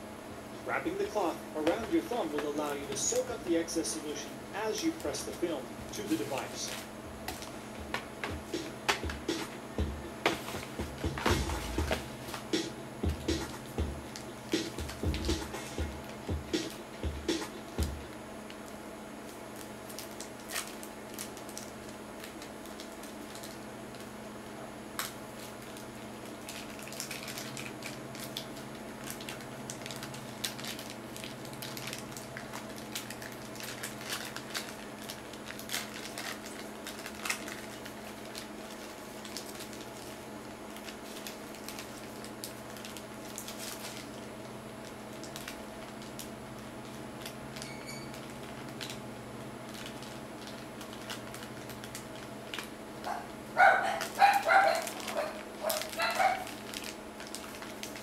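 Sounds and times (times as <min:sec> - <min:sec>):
steady low hum: 0:00.0 - 0:58.0
plastic film crinkling: 0:01.6 - 0:09.2, 0:17.6 - 0:58.0
paper sheet handled: 0:04.7 - 0:07.6.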